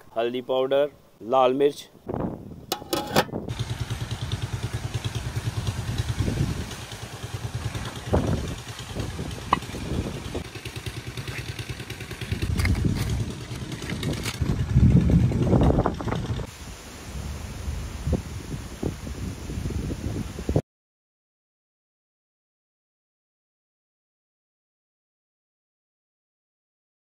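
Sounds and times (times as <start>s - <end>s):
small engine puttering: 2.7s - 16.5s.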